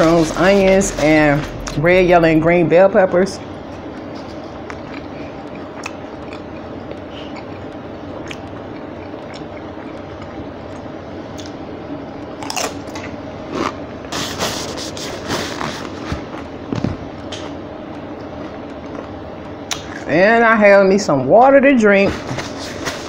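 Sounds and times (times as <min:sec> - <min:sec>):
steady low hum: 0:00.0 - 0:23.0
crunching tortilla chip: 0:12.4 - 0:14.3.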